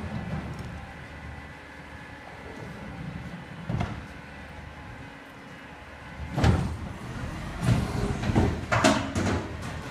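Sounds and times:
garbage truck idling: 0.0 - 9.9
cart lifter clunks: 7.6 - 9.9.

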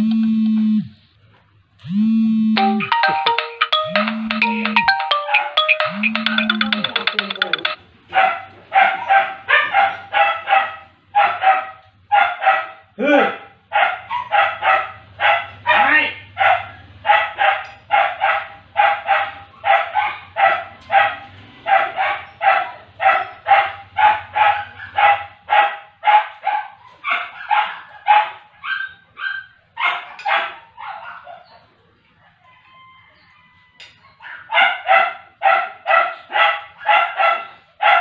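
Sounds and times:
dog barking: 8.1 - 32.7, 34.0 - 38.0.

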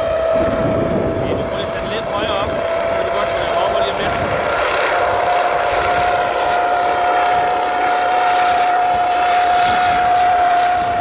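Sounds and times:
drone propellers whining: 0.0 - 11.0.

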